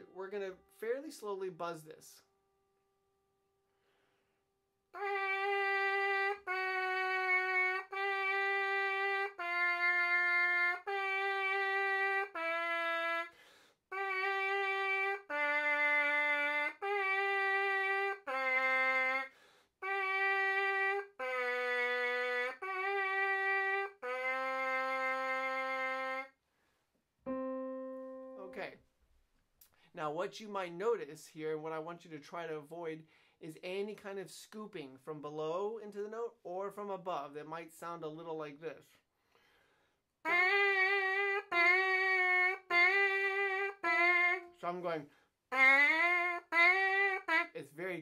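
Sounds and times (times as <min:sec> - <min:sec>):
trumpet mouthpiece buzzing notes: 0:05.0 - 0:26.3, 0:27.3 - 0:28.6, 0:40.2 - 0:47.6.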